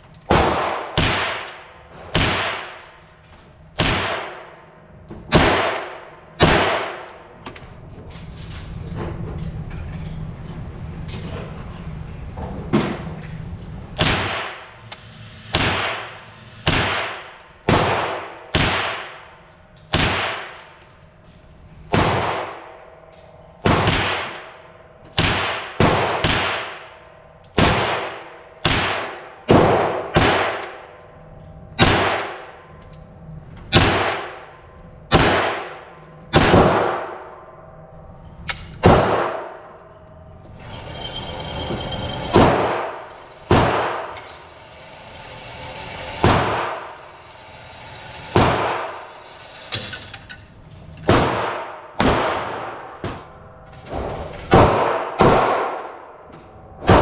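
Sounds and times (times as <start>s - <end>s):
gunshots with echo: 0.3s - 2.8s, 3.8s - 4.5s, 5.3s - 7.1s, 14.0s - 14.6s, 15.5s - 19.2s, 23.6s - 24.4s, 25.2s - 26.8s, 27.6s - 30.8s, 31.8s - 32.4s, 33.7s - 34.4s, 35.1s - 37.2s, 38.8s - 39.6s, 42.4s - 44.1s, 51.1s - 52.9s, 54.5s - 56.1s.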